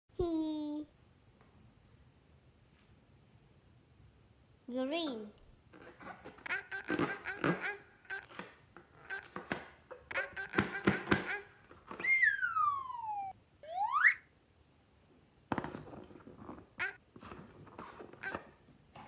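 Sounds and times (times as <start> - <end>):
sped-up cartoon voice chatter: 6.4 - 8.4, 10.1 - 11.5
whistle sliding down: 12.0 - 14.3
whistle sliding up: 12.0 - 14.3.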